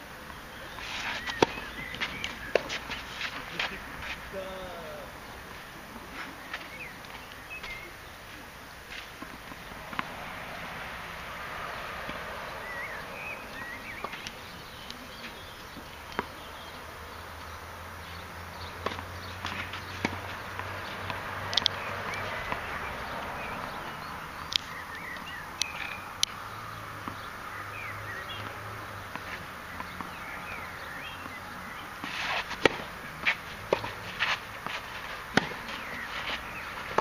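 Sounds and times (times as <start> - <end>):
tennis ball knocks: 9.1 - 10.2, 32.0 - 37.0.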